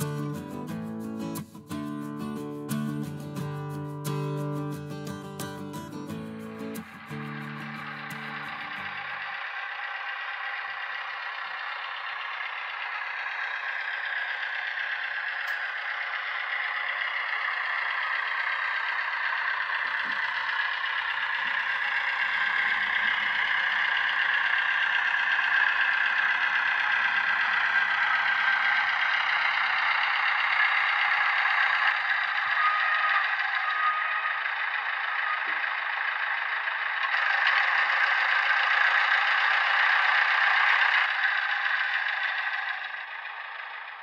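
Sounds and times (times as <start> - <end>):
model diesel engine running: 0.0 - 44.0
wheels rumbling on track: 0.0 - 44.0.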